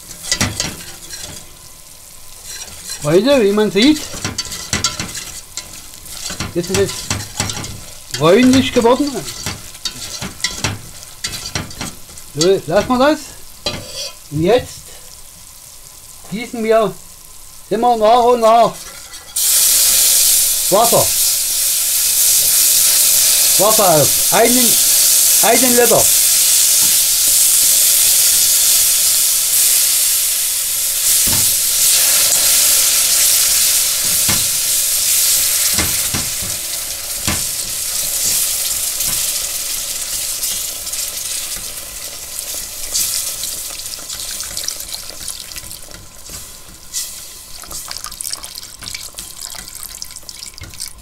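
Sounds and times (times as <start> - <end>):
roux sizzling: 0.0 - 51.0
metal whisk knocking on pot: 35.7 - 36.6.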